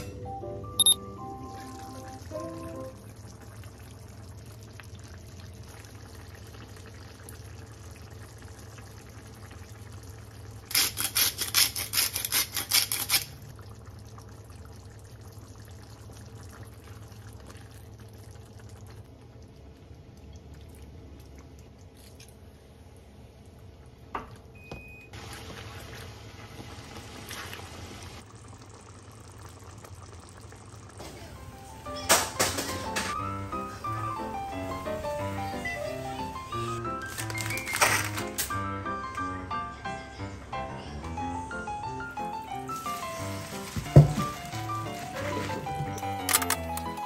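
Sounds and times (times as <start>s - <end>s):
sauce simmering and bubbling: 1.2s - 10.7s, 13.3s - 24.1s, 25.1s - 32.0s, 33.1s - 37.0s
seasoning shaker rattling: 10.7s - 13.3s.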